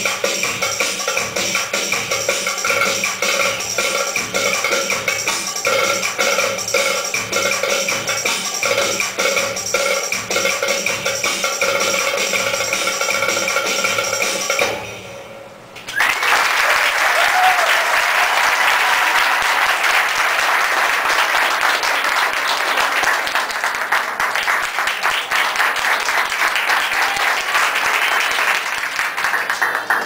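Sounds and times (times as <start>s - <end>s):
belly-dance music: 0.0s - 14.7s
audience applauding: 15.9s - 30.0s.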